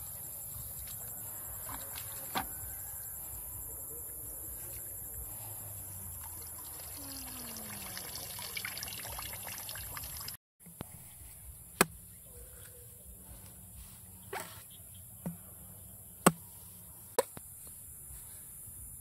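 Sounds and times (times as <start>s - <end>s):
water trickling and pouring: 6.0s - 10.4s.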